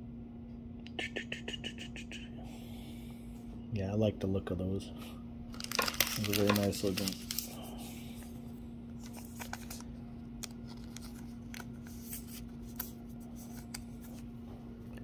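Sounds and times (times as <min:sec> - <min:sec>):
steady low hum: 0:00.0 - 0:15.0
trading cards clicking and sliding: 0:05.7 - 0:07.6.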